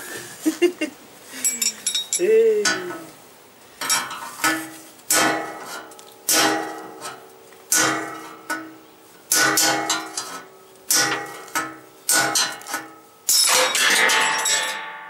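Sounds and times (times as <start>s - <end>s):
hammer striking steel rod: 3.8s - 15.0s.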